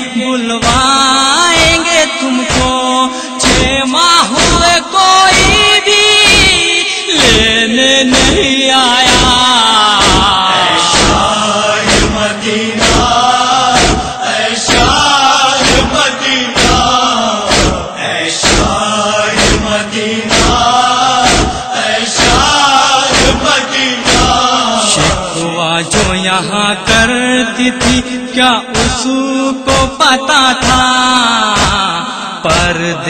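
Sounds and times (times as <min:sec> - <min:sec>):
male voices chanting: 0:00.0 - 0:33.0
hands beating on chest: 0:11.9 - 0:12.2, 0:12.8 - 0:13.2, 0:13.8 - 0:14.1, 0:16.6 - 0:16.9, 0:17.5 - 0:17.8, 0:20.3 - 0:21.6.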